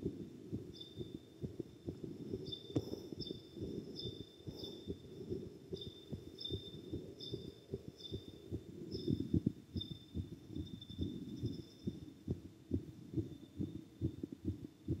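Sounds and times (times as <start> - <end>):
heartbeat thumps: 0.0 - 15.0.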